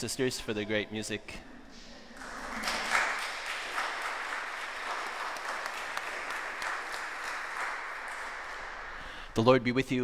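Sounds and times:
people clapping: 0:02.2 - 0:09.4.

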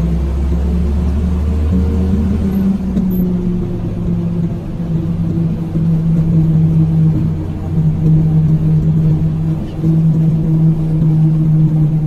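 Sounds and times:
deeper rumble: 0:00.0 - 0:12.0
road rumble: 0:00.0 - 0:12.0
vehicle engine humming: 0:00.0 - 0:12.0.

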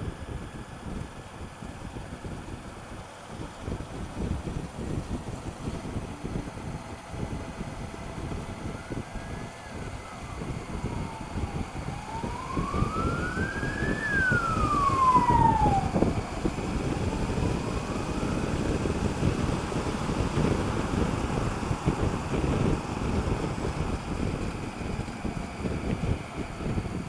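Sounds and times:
motorcycle wind and road noise: 0:00.0 - 0:27.0
emergency vehicle siren wailing: 0:03.8 - 0:27.0.

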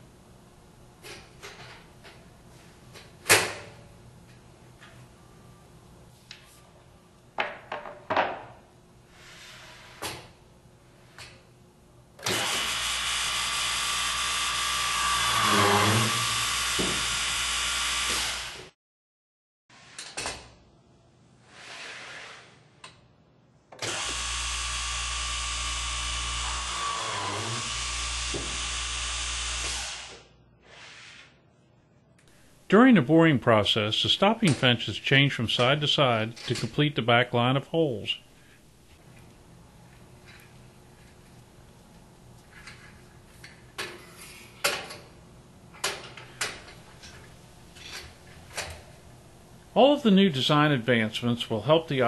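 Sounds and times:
drilling machine motor running: 0:12.3 - 0:18.7, 0:23.8 - 0:30.2.

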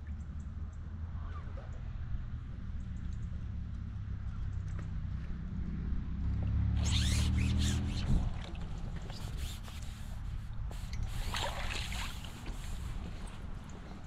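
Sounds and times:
water splashing: 0:06.9 - 0:13.0.

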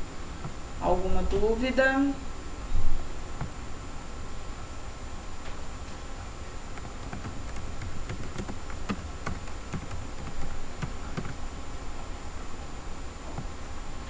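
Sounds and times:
keyboard key clicks: 0:06.7 - 0:11.4.

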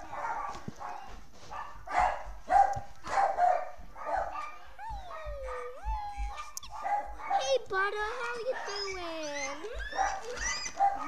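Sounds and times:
guinea pigs squealing: 0:04.8 - 0:11.0
guinea pig whistling call: 0:08.8 - 0:10.8.

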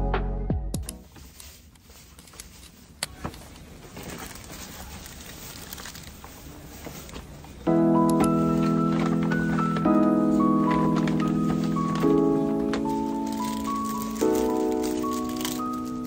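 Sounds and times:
background music: 0:00.0 - 0:01.1, 0:07.7 - 0:16.0
paper bag rustling: 0:01.0 - 0:16.0.

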